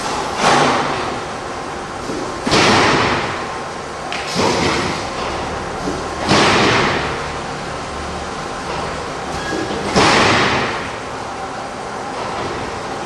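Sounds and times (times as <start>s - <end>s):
timber beam clunk: 0.1s - 1.2s, 2.0s - 3.5s, 4.1s - 7.3s, 8.7s - 11.0s.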